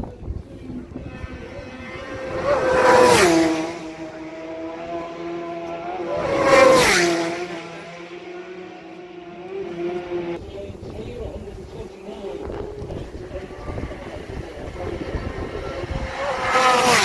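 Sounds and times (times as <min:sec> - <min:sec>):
motorbikes passing at speed: 0:00.1 - 0:17.0.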